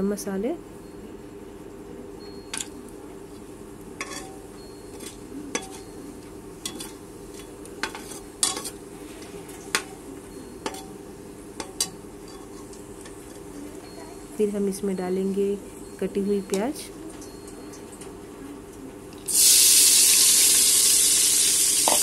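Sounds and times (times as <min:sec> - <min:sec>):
steady low hum: 0:00.0 - 0:19.2
metal spoon clinking against pot: 0:02.5 - 0:02.8, 0:04.0 - 0:06.0, 0:06.6 - 0:08.8, 0:10.6 - 0:11.0, 0:11.6 - 0:13.5.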